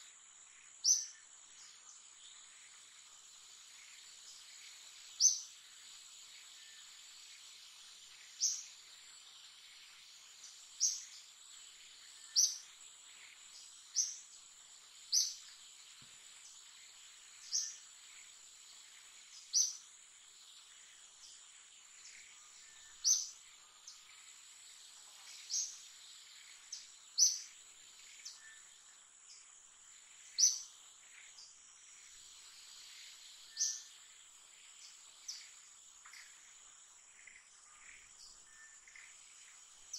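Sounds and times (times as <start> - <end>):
insects droning in trees: 0.0 - 39.9.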